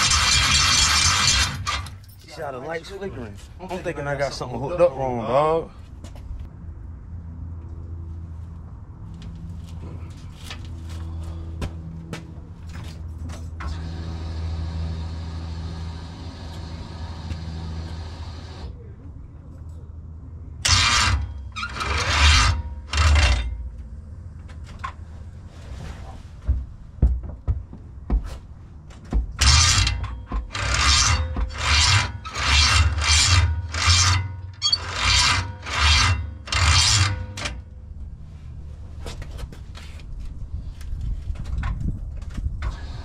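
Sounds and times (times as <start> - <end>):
loud rasping strokes: 0.0 - 2.0, 20.6 - 23.6, 29.4 - 37.6.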